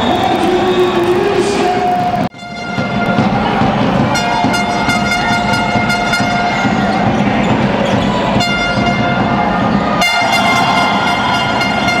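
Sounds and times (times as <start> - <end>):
music with held horn-like notes: 2.4 - 3.4, 4.1 - 6.8, 8.4 - 9.4, 10.0 - 12.0.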